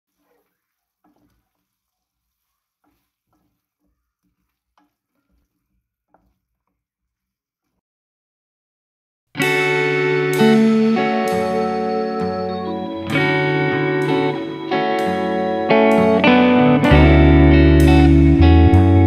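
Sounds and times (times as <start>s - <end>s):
faint stirring in a pan: 0.1s - 7.8s.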